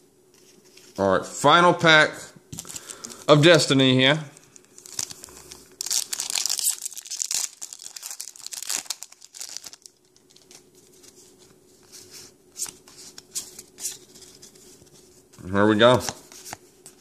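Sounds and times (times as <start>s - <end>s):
foil wrapper tearing and crinkling: 4.6s - 10.6s.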